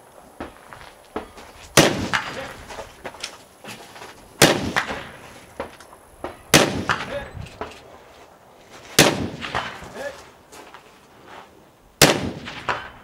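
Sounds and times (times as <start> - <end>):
rifle shots with echo: 1.8 - 2.6, 4.4 - 5.4, 6.4 - 7.3, 9.0 - 10.1, 12.0 - 13.0
faint sharp cracks: 12.0 - 13.0.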